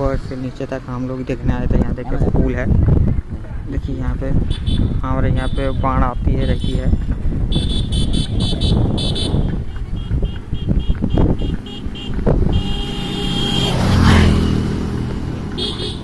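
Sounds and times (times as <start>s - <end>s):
motor vehicle passing: 7.0s - 16.0s
electronic horn beeping: 7.5s - 14.2s.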